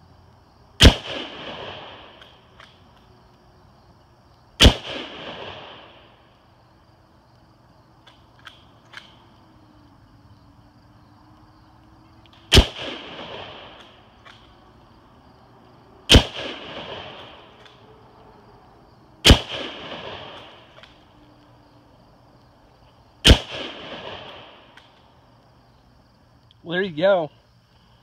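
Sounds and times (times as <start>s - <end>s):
rifle shots with echo: 0.8s - 2.6s, 4.6s - 6.3s, 12.3s - 14.5s, 16.0s - 17.9s, 19.2s - 21.1s, 23.2s - 24.9s.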